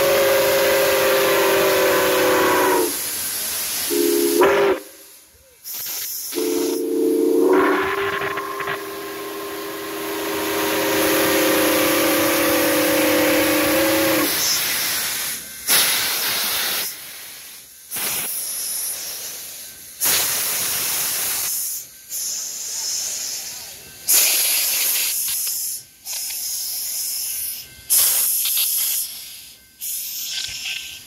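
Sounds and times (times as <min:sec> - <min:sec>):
steam locomotive whistle chord: 0:00.0 - 0:03.2, 0:03.9 - 0:05.4, 0:06.3 - 0:14.7
steam hissing: 0:00.0 - 0:31.0.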